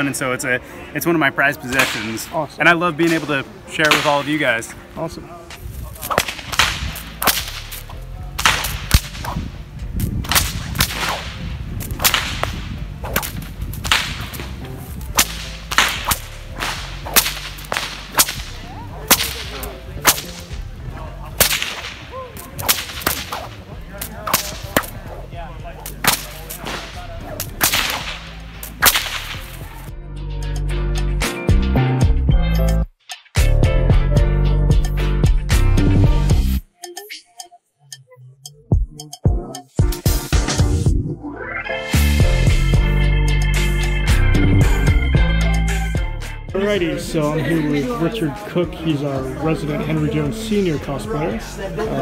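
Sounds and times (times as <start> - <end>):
bullwhip cracking: 1.7 - 2.2, 3.0 - 4.4, 5.7 - 20.7, 21.3 - 29.9.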